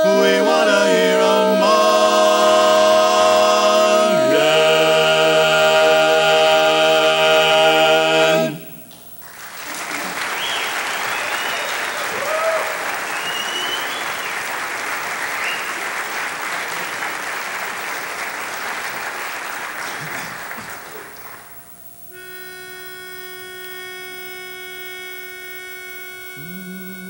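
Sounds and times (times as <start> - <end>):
whistles: 8.4 - 17.2, 19.7 - 27.0
audience applause: 9.2 - 21.6
pitch pipe reed note: 22.2 - 27.0.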